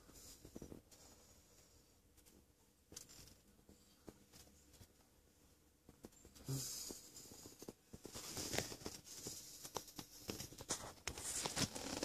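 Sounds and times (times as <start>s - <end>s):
small clicks and scuffs: 0.1s - 5.1s, 5.8s - 12.0s
fabric rustling and scratching: 5.8s - 12.0s.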